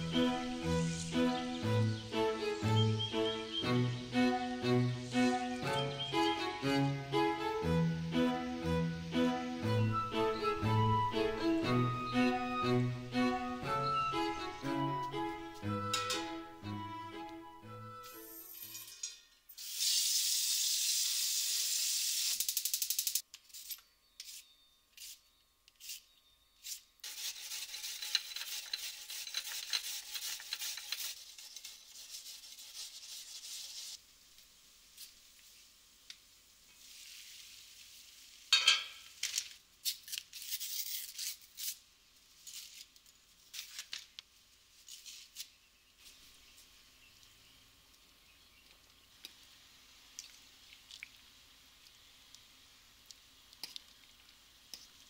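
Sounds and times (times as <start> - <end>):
yam grated on metal grater: 26.6 - 33.9.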